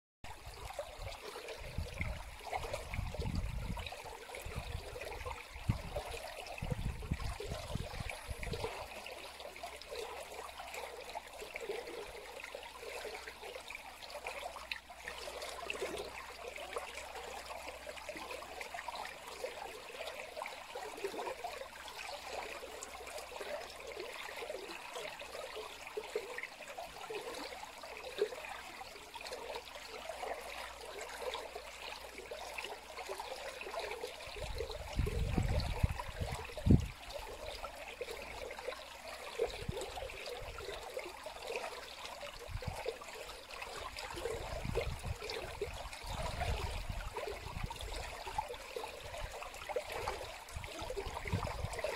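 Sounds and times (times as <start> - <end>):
stream trickling over rocks: 0.2 - 51.9.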